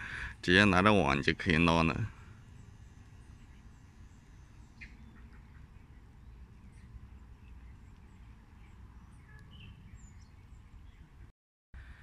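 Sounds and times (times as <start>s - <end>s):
low steady rumble: 0.0s - 12.0s
faint bird chirps: 2.2s - 11.2s.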